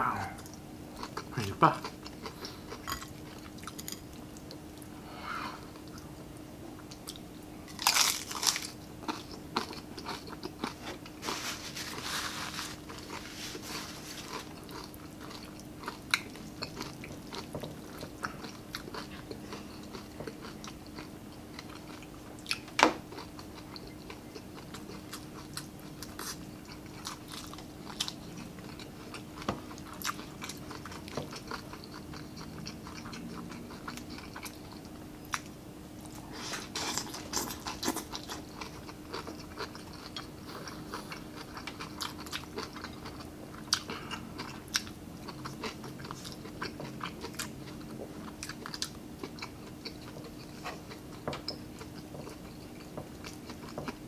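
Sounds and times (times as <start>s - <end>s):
faint steady hum: 0.0s - 54.0s
chewing with crisp crackles: 0.2s - 54.0s
crunch of crispy skin bitten: 7.7s - 8.8s.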